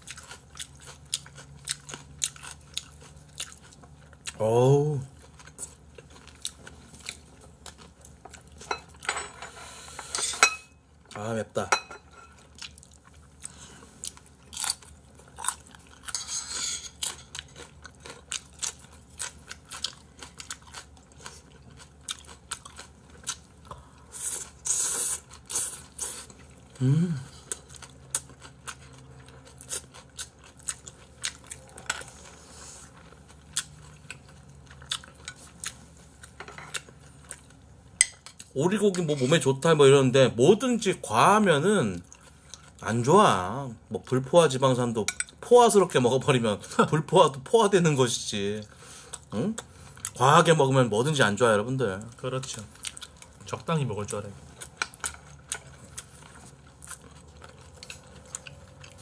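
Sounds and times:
chewing and crunchy bites: 0:00.0 - 0:04.4, 0:12.4 - 0:16.3, 0:16.9 - 0:26.7, 0:27.4 - 0:37.6, 0:54.5 - 0:59.0.

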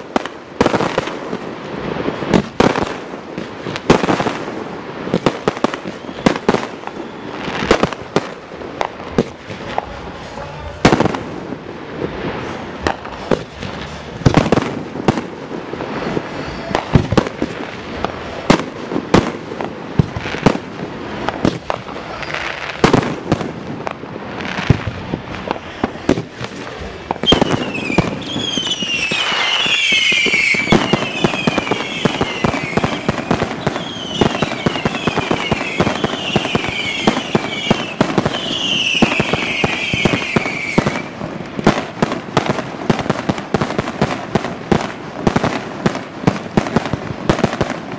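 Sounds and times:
fireworks booming: 0:00.0 - 0:47.9
falling firework whistles: 0:03.7 - 0:08.2, 0:12.2 - 0:17.6, 0:21.1 - 0:23.3, 0:24.4 - 0:41.2.

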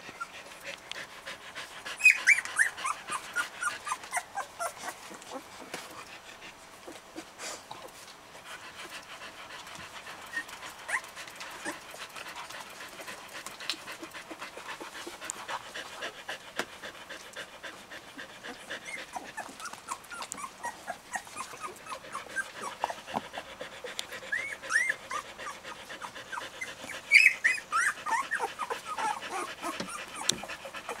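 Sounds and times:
puppies squeaking and whimpering: 0:01.9 - 0:05.2, 0:18.7 - 0:23.1, 0:24.1 - 0:31.0.

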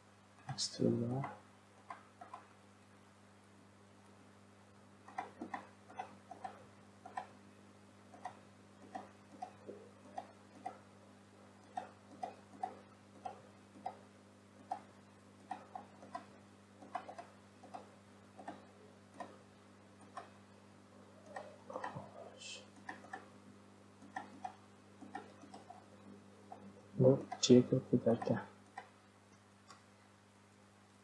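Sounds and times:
steady low hum: 0:00.0 - 0:31.0
computer mouse and keyboard clicking: 0:00.5 - 0:02.5, 0:05.0 - 0:07.4, 0:08.1 - 0:10.8, 0:11.6 - 0:14.0, 0:14.6 - 0:19.4, 0:20.0 - 0:20.4, 0:21.2 - 0:23.3, 0:24.0 - 0:25.9, 0:26.5 - 0:28.9.

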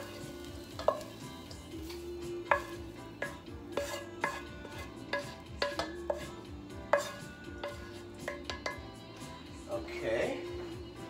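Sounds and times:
metal pan clinking against bowl: 0:00.0 - 0:01.2, 0:02.4 - 0:09.0.

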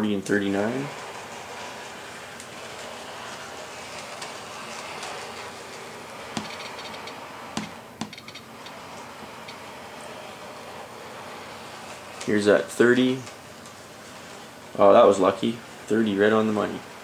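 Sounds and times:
model locomotive whirring: 0:00.0 - 0:17.0
sharp clicks: 0:06.4 - 0:08.8.

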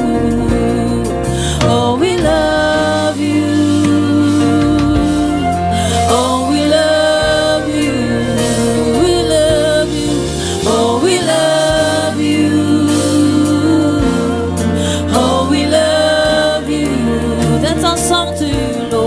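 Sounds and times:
band playing gospel music: 0:00.0 - 0:19.0
woman singing into a microphone: 0:00.0 - 0:19.0.

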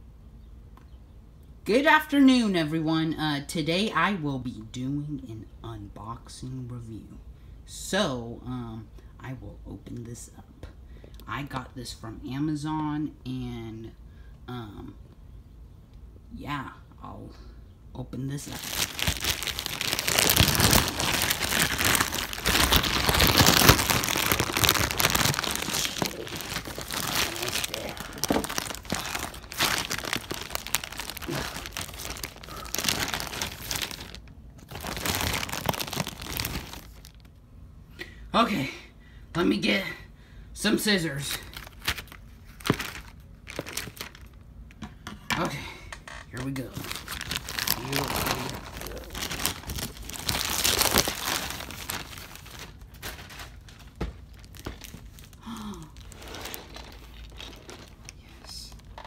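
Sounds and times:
plastic packaging crinkling: 0:18.4 - 0:37.3, 0:41.3 - 0:44.4, 0:46.6 - 0:59.0.

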